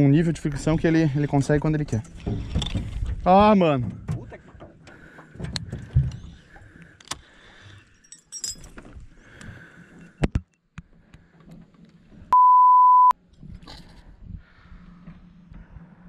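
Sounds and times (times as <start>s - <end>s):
electronic censor bleep: 12.3s - 13.2s.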